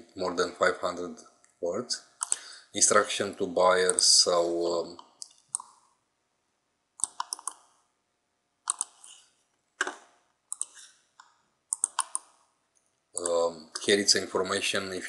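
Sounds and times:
mouse and keyboard clicks: 5.0s - 5.8s, 7.0s - 7.7s, 8.7s - 9.2s, 9.8s - 12.4s.

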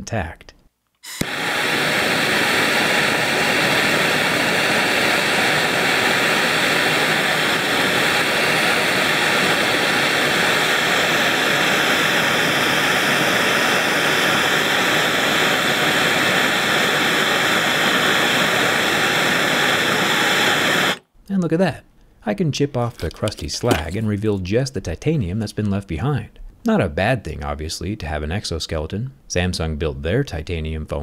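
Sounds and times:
gas torch flame hissing: 1.1s - 21.0s.

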